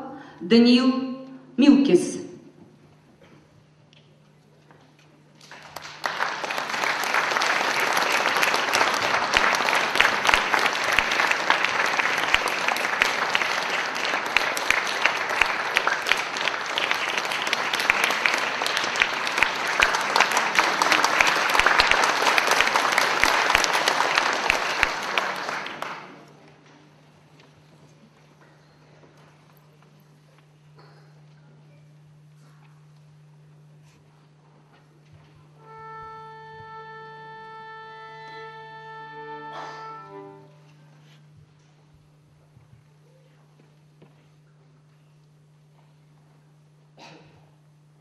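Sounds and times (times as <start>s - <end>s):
audience applauding: 5.4s - 26.6s.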